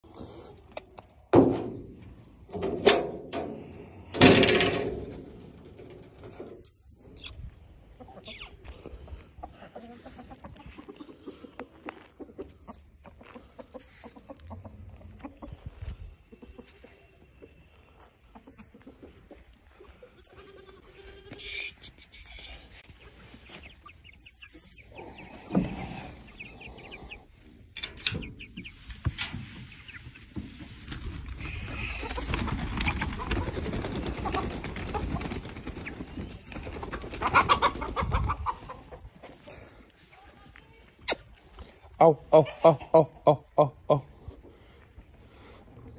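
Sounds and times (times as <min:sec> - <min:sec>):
chickens clucking: 0:00.0 - 0:45.9
knocks and thumps: 0:01.3 - 0:03.5
wire-mesh cage door clanking: 0:02.5 - 0:06.6
straw rustling: 0:27.4 - 0:32.3.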